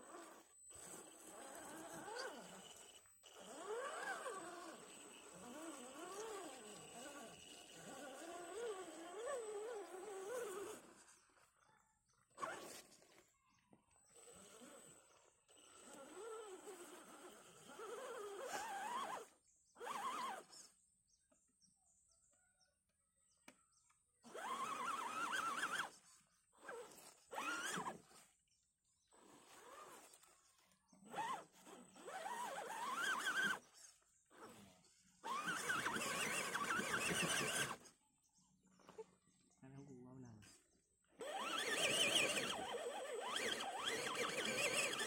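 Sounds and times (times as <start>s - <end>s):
toy car motor whining: 0.0s - 21.5s, 23.4s - 38.0s, 40.3s - 45.0s.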